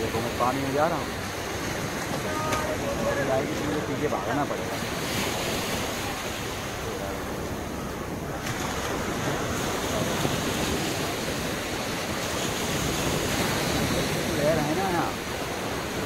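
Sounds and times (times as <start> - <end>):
sea waves breaking on beach: 0.0 - 16.0.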